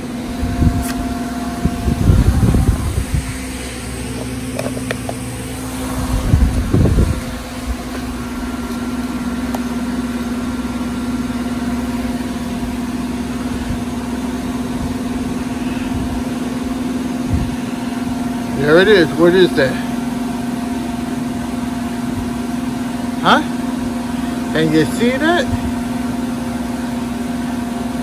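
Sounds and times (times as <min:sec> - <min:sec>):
machinery humming: 0:00.0 - 0:28.0
knocks and handling noise: 0:04.1 - 0:05.2.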